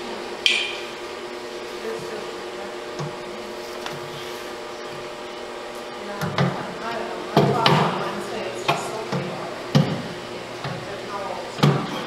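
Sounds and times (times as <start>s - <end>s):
steady background hum: 0.0s - 12.0s.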